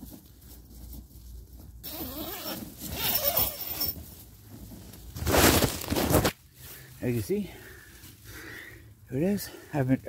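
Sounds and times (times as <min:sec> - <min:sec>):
tent zipper being pulled: 0:01.8 - 0:04.0, 0:05.2 - 0:06.4.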